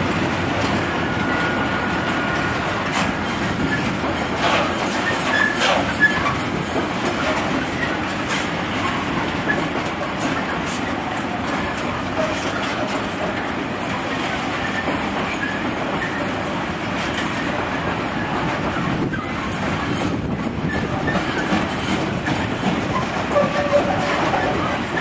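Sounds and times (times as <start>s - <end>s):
train wheels rumbling on rail: 0.0s - 25.0s
faint wheel squeaks: 3.6s - 6.4s.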